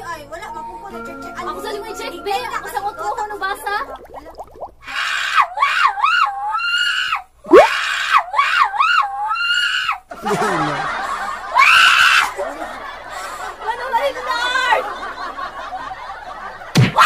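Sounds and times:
woman shrieking with laughter: 0:04.9 - 0:10.0, 0:11.4 - 0:12.6.

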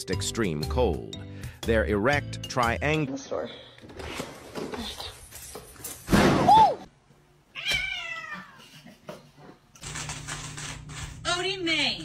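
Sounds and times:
cat meowing: 0:07.5 - 0:08.6.

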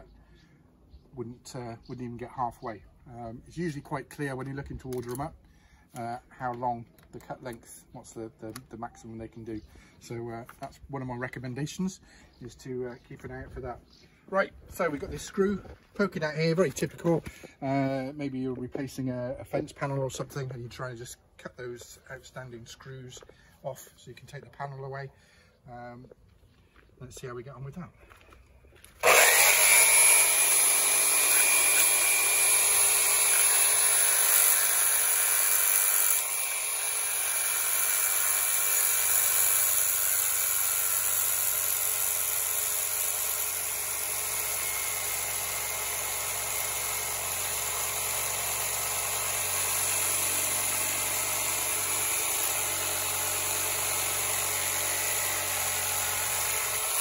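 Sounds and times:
reciprocating saw cutting metal: 0:29.0 - 0:57.0.

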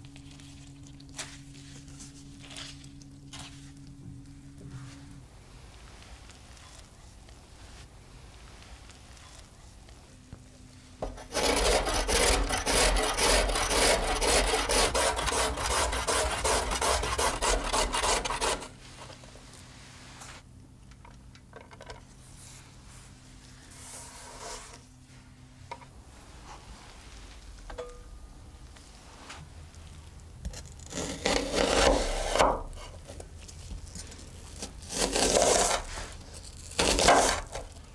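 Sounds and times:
faint rustling of vegetables: 0:00.0 - 0:11.0, 0:22.1 - 0:27.7
carrot grating on metal grater: 0:11.2 - 0:18.7.

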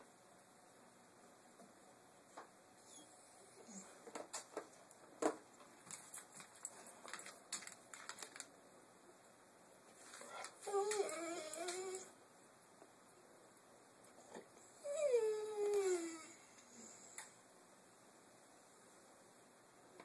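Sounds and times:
dog whining: 0:02.8 - 0:04.0, 0:10.2 - 0:12.2, 0:14.7 - 0:17.0
dog toenails clicking on floor: 0:04.1 - 0:08.5, 0:10.0 - 0:12.1.

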